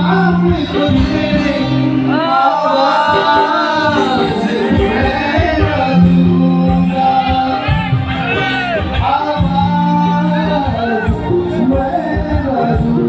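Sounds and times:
person singing long notes: 0:00.0 - 0:13.0
sustained bass notes: 0:00.0 - 0:13.0.

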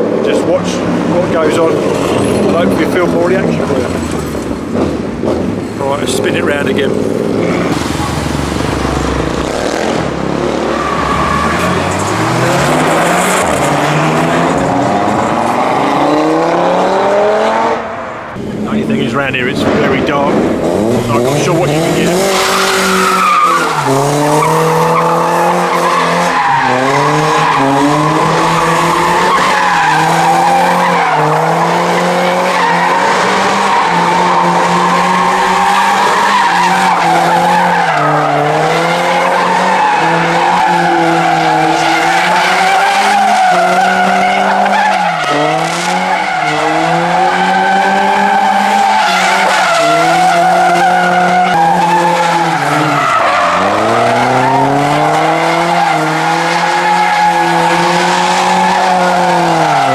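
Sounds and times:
car engine revving: 0:00.0 - 0:59.9
tyres squealing: 0:10.6 - 0:16.1, 0:20.7 - 0:59.9.

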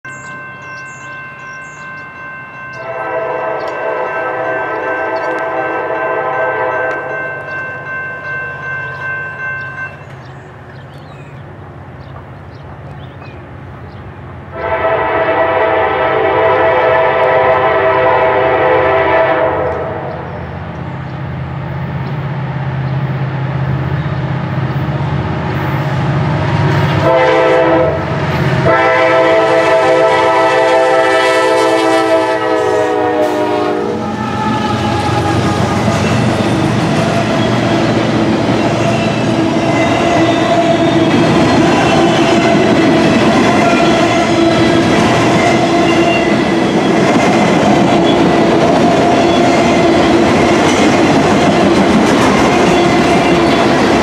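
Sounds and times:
locomotive engine and train rumble: 0:00.0 - 0:54.0
train air horn: 0:02.8 - 0:07.2, 0:14.5 - 0:20.3, 0:26.6 - 0:36.5, 0:38.9 - 0:44.8.

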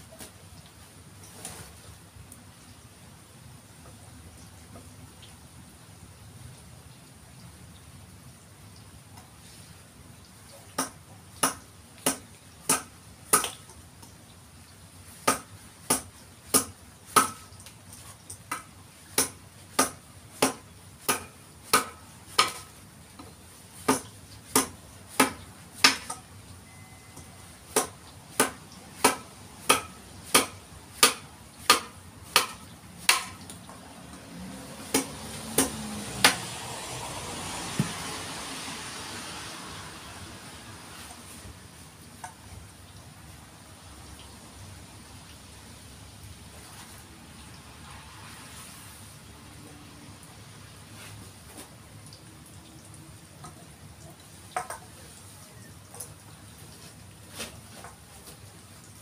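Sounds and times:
mallet striking chisel into wood: 0:27.8 - 0:33.4.

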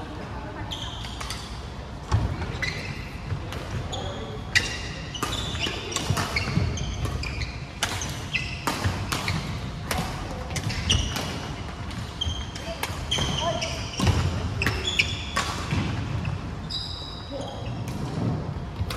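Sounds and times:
shoes squeaking on wooden floor: 0:03.9 - 0:09.6, 0:10.6 - 0:11.2, 0:12.0 - 0:15.3
rackets hitting shuttlecock: 0:04.6 - 0:16.3.

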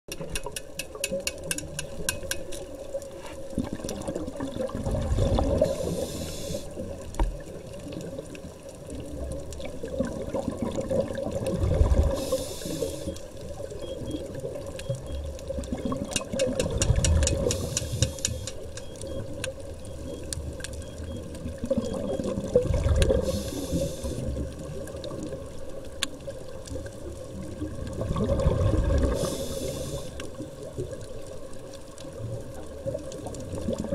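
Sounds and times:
regulator inhale hiss: 0:05.6 - 0:06.8, 0:12.1 - 0:13.2, 0:17.4 - 0:18.6, 0:23.2 - 0:24.3, 0:29.1 - 0:30.4
exhaust bubbles rushing: 0:09.8 - 0:12.2, 0:27.9 - 0:29.2
sharp clicks: 0:16.0 - 0:21.2.

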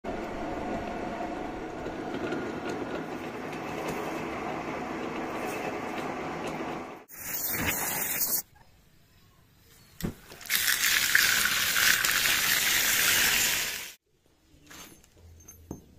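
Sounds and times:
metal lathe running: 0:00.1 - 0:07.0.

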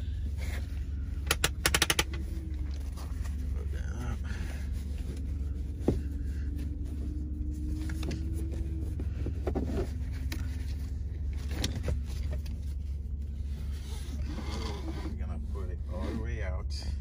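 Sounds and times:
steady low hum: 0:00.0 - 0:17.0
seatbelt latch clicks and knocks: 0:01.2 - 0:02.2.

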